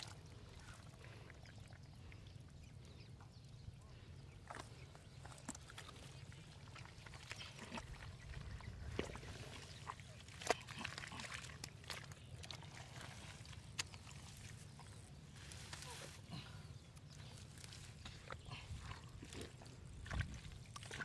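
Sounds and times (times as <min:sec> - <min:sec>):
hands squelching in mud: 0:04.4 - 0:21.0.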